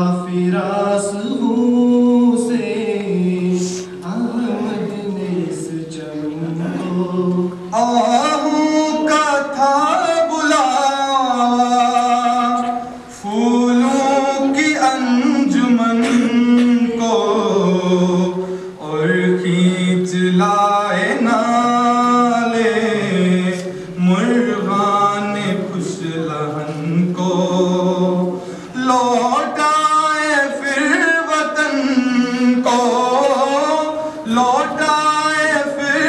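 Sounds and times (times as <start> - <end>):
man singing unaccompanied: 0.0 - 36.0.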